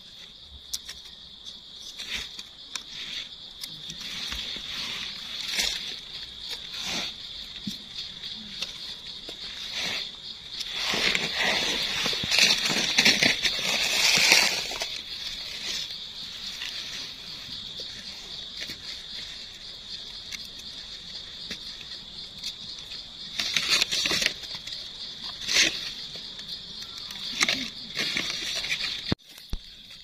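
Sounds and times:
dry leaves rustling and crackling: 10.6s - 15.9s.

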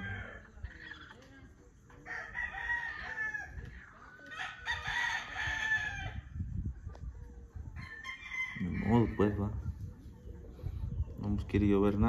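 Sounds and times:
rooster crowing: 0.0s - 0.6s, 2.0s - 3.7s, 7.8s - 9.2s.

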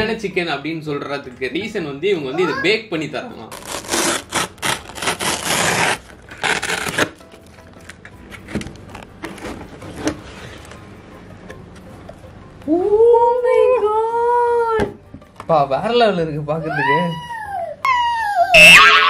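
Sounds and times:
tape ripping off cardboard: 3.5s - 7.3s
cardboard rustling: 3.5s - 10.8s.

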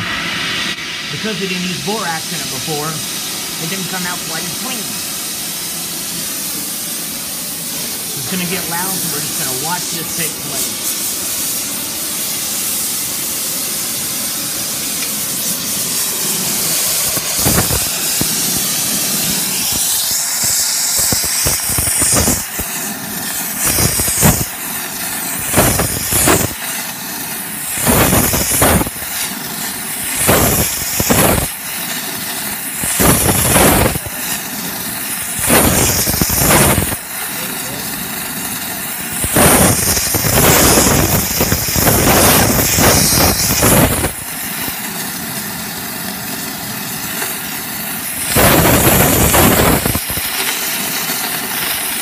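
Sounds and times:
gas torch flame hissing: 0.0s - 52.0s.

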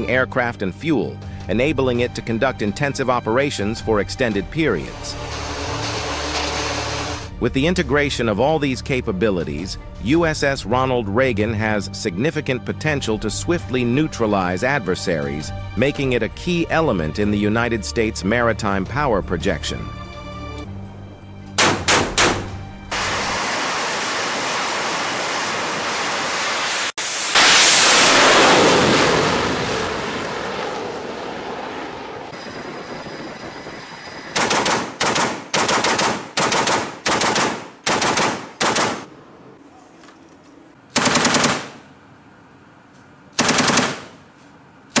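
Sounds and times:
autocannon shots: 21.6s - 23.2s, 34.3s - 39.1s, 40.9s - 41.9s, 43.4s - 44.3s
jet engine roar: 22.9s - 34.7s
machine gun bursts: 34.4s - 39.1s, 41.0s - 41.8s, 43.4s - 44.2s.

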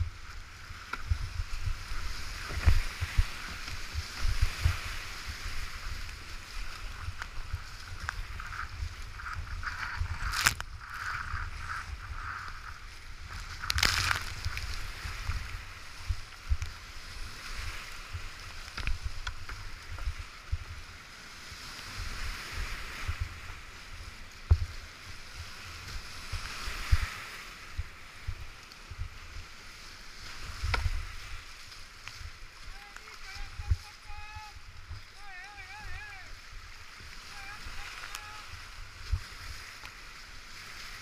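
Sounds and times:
paddle strokes: 0.0s - 41.0s
whitewater rapids rushing: 32.2s - 41.0s.

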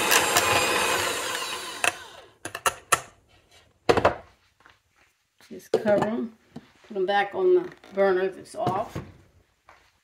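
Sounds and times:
electric mixer whipping: 0.0s - 2.4s.

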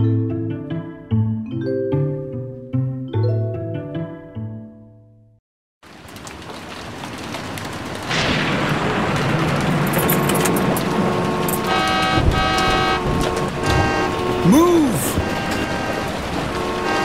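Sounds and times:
heavy rain: 5.8s - 17.0s
traffic noise: 5.8s - 17.0s
car horns honking: 10.5s - 17.0s.

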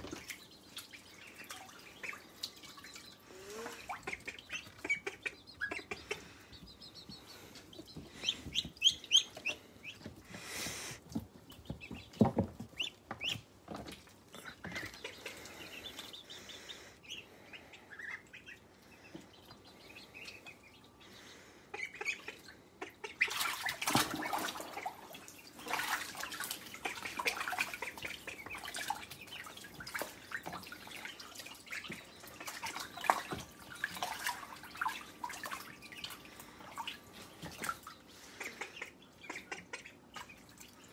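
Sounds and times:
ducklings peeping: 0.0s - 40.9s
water splashing: 23.2s - 40.9s.

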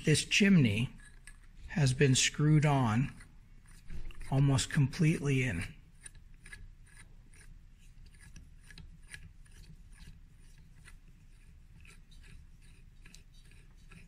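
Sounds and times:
metal tube screwing clicks: 0.9s - 1.6s, 5.5s - 14.0s.

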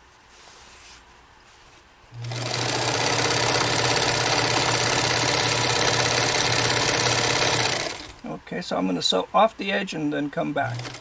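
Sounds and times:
sewing machine needle running: 2.2s - 8.2s, 10.6s - 11.0s.

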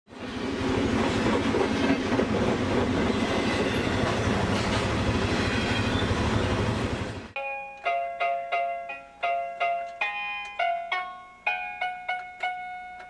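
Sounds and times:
train wheels rumbling and clattering: 0.2s - 7.4s.

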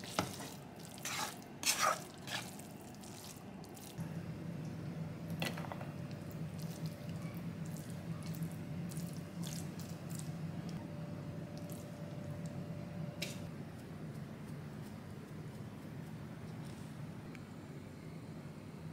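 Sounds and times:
wet spaghetti squishing: 0.0s - 4.0s, 6.6s - 10.8s
steady low hum: 2.7s - 18.9s.

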